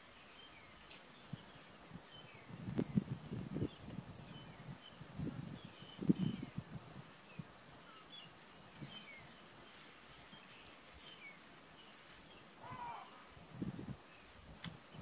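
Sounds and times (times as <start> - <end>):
small birds chirping: 0.0 - 15.0
arched bird call: 12.6 - 13.3.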